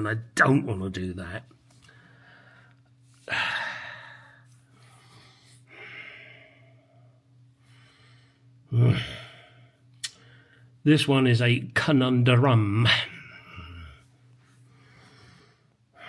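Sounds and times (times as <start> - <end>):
faint low hum: 0.0 - 16.0
man sighing heavily: 3.2 - 4.4, 8.7 - 9.7.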